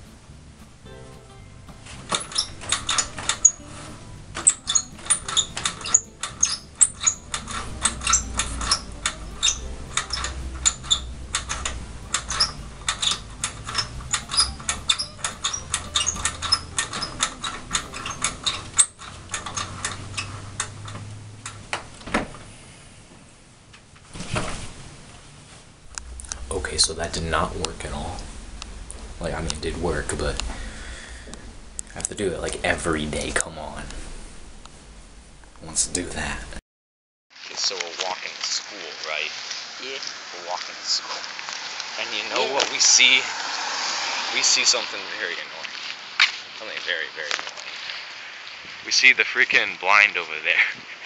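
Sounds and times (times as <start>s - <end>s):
window blind slats rattling: 2.0s - 22.5s.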